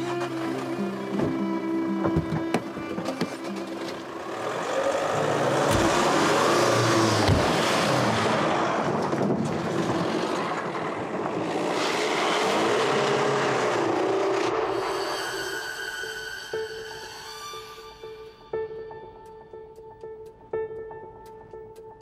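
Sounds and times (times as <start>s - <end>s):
tyres on loose dirt: 0.0s - 14.8s
suv engine revving: 3.9s - 14.9s.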